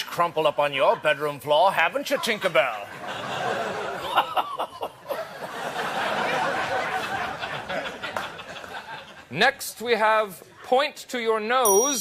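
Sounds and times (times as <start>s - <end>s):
studio audience laughing: 2.9s - 9.3s.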